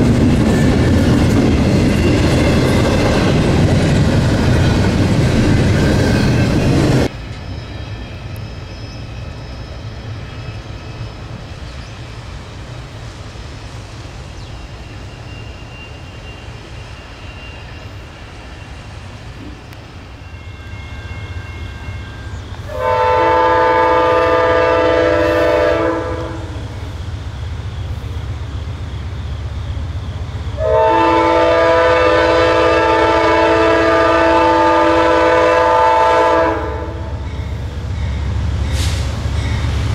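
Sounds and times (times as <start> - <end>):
passing train rumble: 0.0 - 39.9
locomotive horn blasts: 22.7 - 26.6, 30.6 - 37.2.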